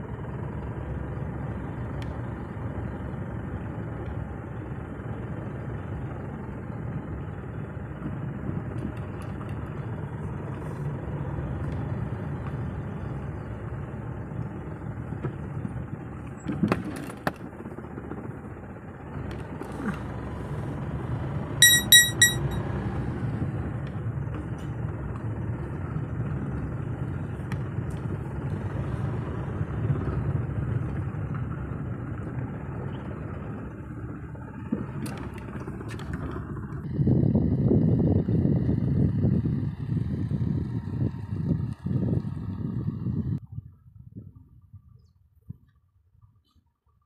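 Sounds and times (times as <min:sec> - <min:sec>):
engine and tyre rumble: 0:00.0 - 0:21.6, 0:22.4 - 0:47.0
short high beeps: 0:21.6 - 0:22.6.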